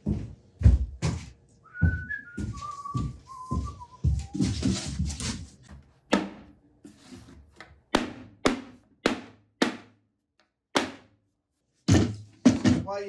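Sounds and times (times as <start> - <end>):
mallet knocking on wood: 7.9 - 10.0, 10.8 - 11.1.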